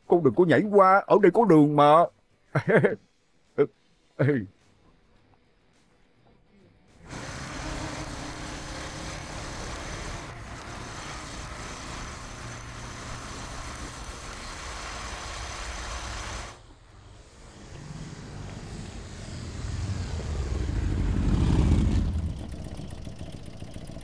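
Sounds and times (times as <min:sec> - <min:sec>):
wind and road noise: 0:18.4 - 0:22.4
motorcycle engine running: 0:18.9 - 0:24.0.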